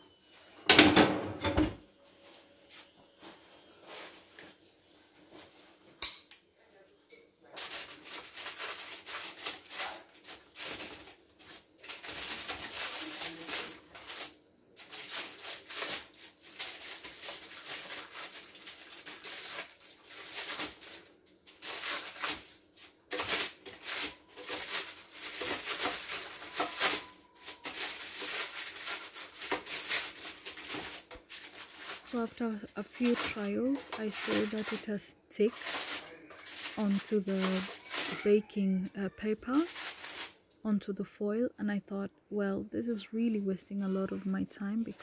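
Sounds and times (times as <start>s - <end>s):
aluminium foil crinkling: 7.4s - 40.6s, 42.9s - 45.0s.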